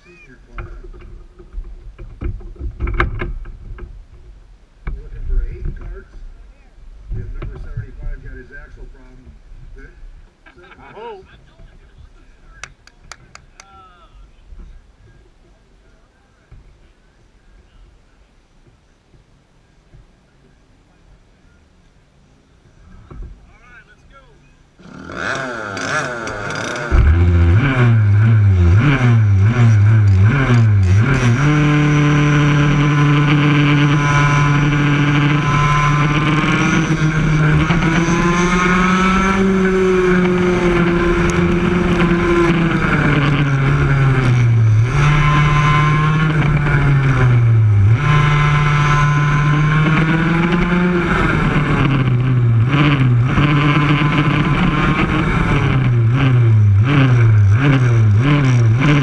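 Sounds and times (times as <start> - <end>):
kart engine revving: 24.8 - 59.0.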